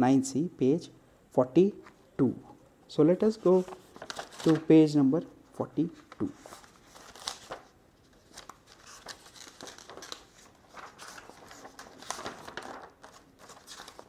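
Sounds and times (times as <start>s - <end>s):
book pages rustling: 3.3s - 4.7s, 6.0s - 14.0s.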